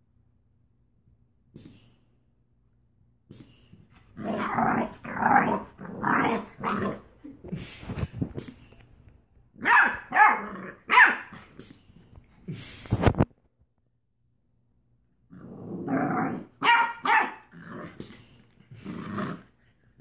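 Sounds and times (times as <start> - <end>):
puppy barking: 9.6 - 11.4, 16.6 - 17.5.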